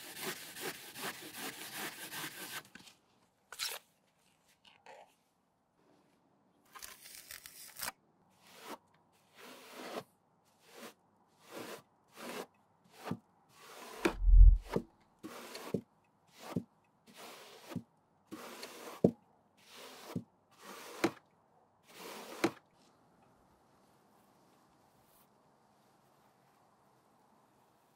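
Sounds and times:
loud low thump: 0:14.1 - 0:14.7.

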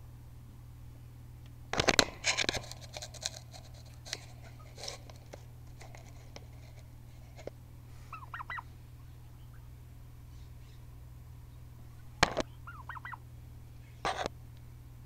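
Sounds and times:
knocks and scrapes: 0:01.8 - 0:07.6, 0:14.1 - 0:14.3
turkey calling: 0:08.0 - 0:09.7, 0:11.9 - 0:13.2.

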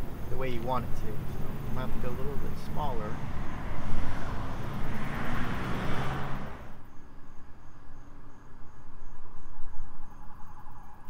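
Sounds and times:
vehicle passing: 0:00.0 - 0:07.3
road traffic rumble: 0:00.0 - 0:08.6
crickets chirping: 0:00.0 - 0:11.0.

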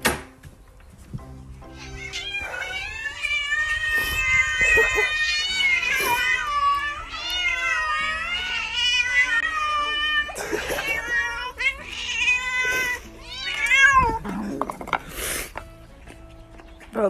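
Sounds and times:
cat yowling: 0:01.7 - 0:14.7.

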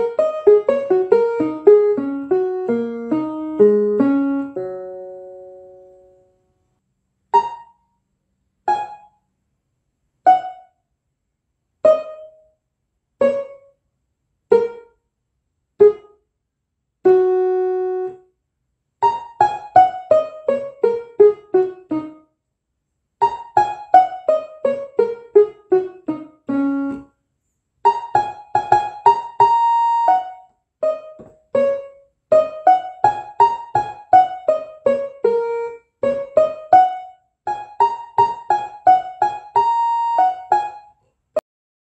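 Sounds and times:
electronic keyboard notes: 0:00.0 - 0:06.4, 0:08.7 - 0:09.2, 0:10.3 - 0:10.7, 0:17.1 - 0:18.3, 0:19.0 - 0:22.2, 0:23.2 - 0:27.1, 0:27.9 - 0:41.0.

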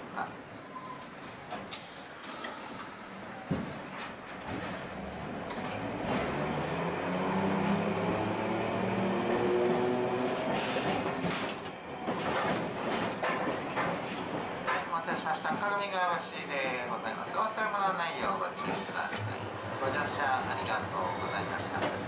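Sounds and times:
tram motor whine: 0:04.2 - 0:12.8.

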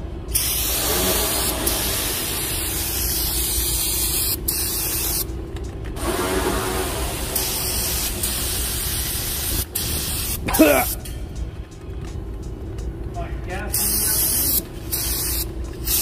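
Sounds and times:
aerosol spray hissing: 0:00.4 - 0:05.3, 0:07.0 - 0:11.0, 0:13.8 - 0:16.0.

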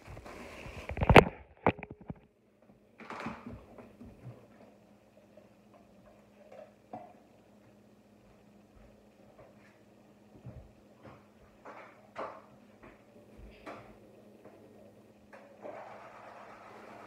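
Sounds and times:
faint steady hum: 0:00.0 - 0:17.0
phone rustling when handled: 0:00.6 - 0:02.2.

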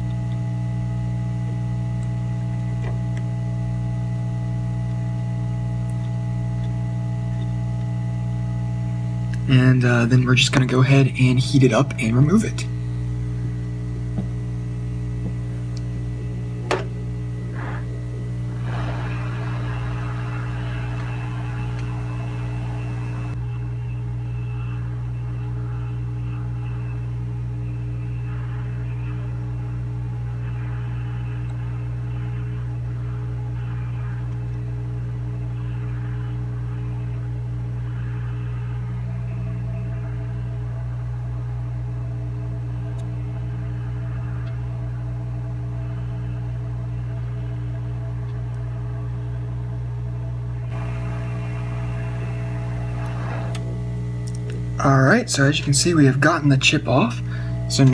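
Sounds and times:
hot-air station blowing: 0:00.0 - 0:23.5, 0:50.7 - 0:57.9
low electrical hum: 0:00.0 - 0:57.9
hot air gun hissing: 0:18.6 - 0:23.2.

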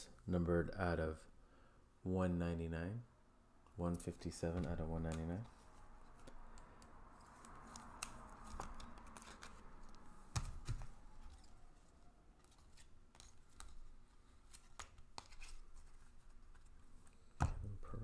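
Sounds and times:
light clicks and taps: 0:04.6 - 0:05.4
cards sliding and rubbing: 0:07.2 - 0:11.6, 0:12.4 - 0:17.4.

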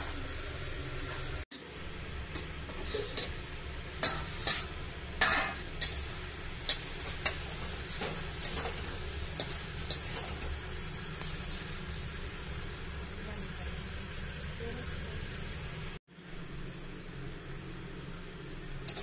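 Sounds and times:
metal spatula scraping metal pan: 0:02.7 - 0:03.4, 0:04.0 - 0:10.5.

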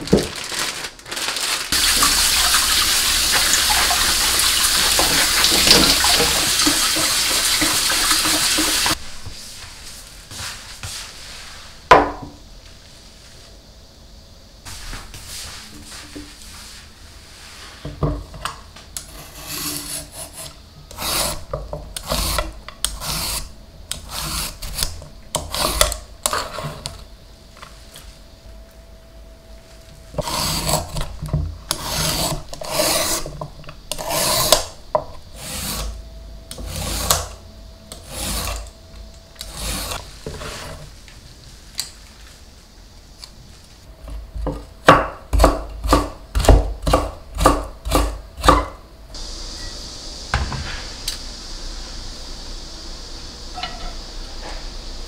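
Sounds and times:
peeler rasping along a root: 0:19.1 - 0:24.9, 0:30.2 - 0:31.0, 0:31.7 - 0:33.3, 0:33.9 - 0:34.6, 0:38.0 - 0:38.7, 0:39.4 - 0:40.7.

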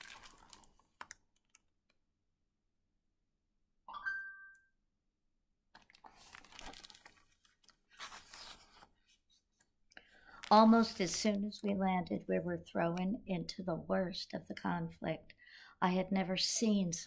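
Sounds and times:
paper rustling: 0:05.8 - 0:09.6.

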